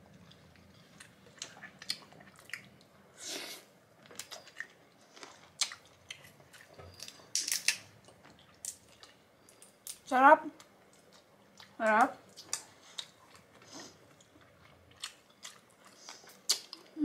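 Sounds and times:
wet chewing and biting: 0:14.1 - 0:16.9.

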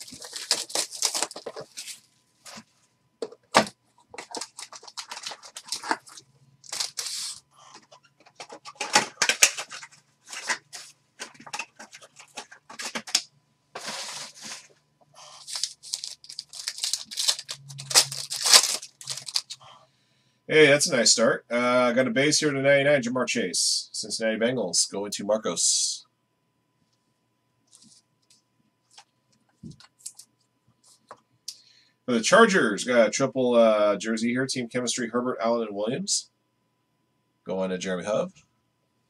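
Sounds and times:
foil wrappers crinkling and tearing: 0:00.0 - 0:02.6, 0:03.5 - 0:13.2, 0:13.8 - 0:19.6
cards being handled: 0:00.0 - 0:14.7, 0:15.4 - 0:19.6.

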